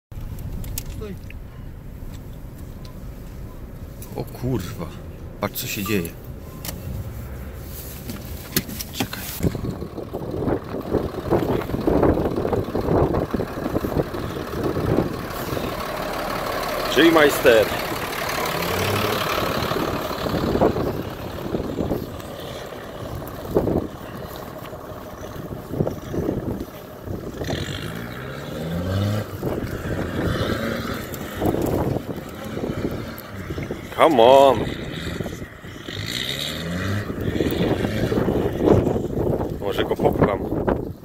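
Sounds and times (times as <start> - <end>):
vehicle engine idling: 0.2 - 41.0
scuffing and rustling: 6.9 - 9.5.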